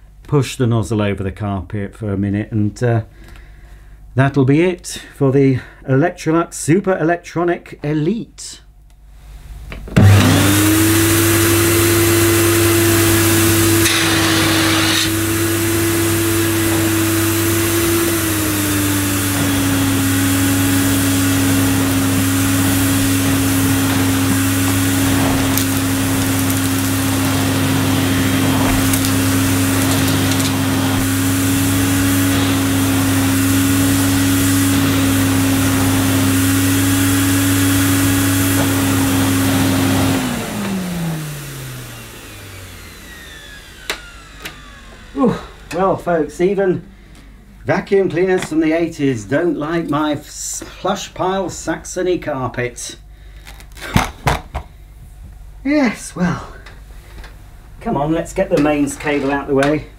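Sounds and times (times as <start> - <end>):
vacuum cleaner motor hum: 9.8 - 47.6
nozzle scraping on carpet: 10.0 - 39.7.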